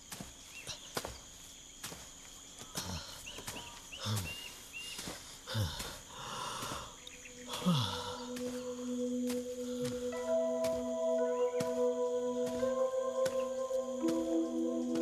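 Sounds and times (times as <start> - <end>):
steady low drone: 7.5 - 15.0.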